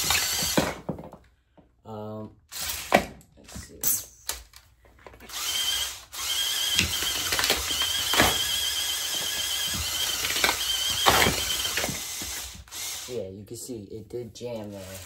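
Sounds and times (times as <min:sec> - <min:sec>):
motors whining: 0:05.3 - 0:13.2.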